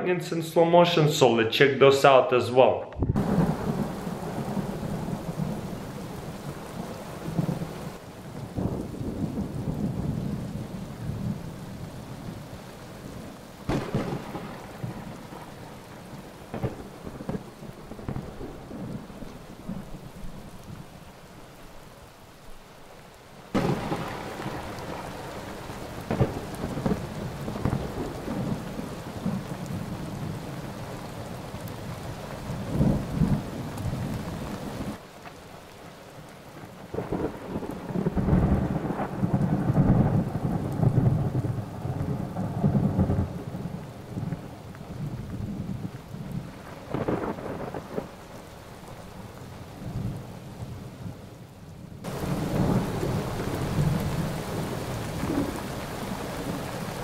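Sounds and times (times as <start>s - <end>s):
steady rain: 2.6s - 57.0s
rolling thunder: 2.9s - 12.5s, 13.1s - 15.9s, 16.5s - 20.2s, 23.6s - 30.7s, 36.9s - 48.2s, 52.0s - 57.0s.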